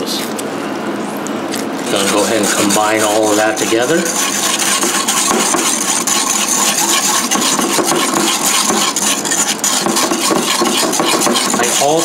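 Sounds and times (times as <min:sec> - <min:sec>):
whisk beating sauce in bowl: 0:01.8 - 0:12.0.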